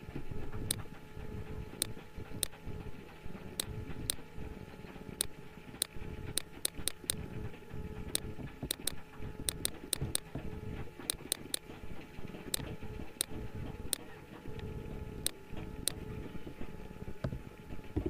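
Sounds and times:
faint steady hum: 0.0 - 18.0
computer mouse clicking: 0.6 - 0.9, 1.8 - 2.6, 3.6 - 4.2, 5.2 - 7.3, 8.1 - 10.4, 11.1 - 11.6, 12.5 - 16.1.

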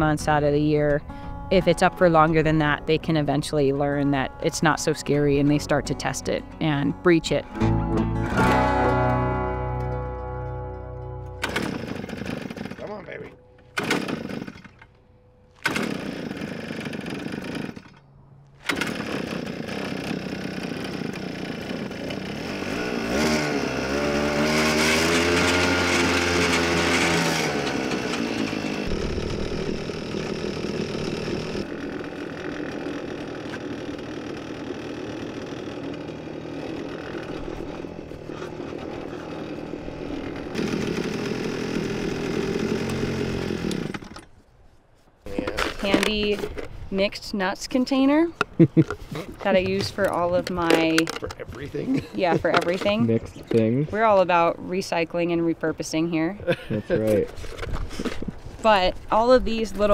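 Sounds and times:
small engine running: 1.0 - 44.3.

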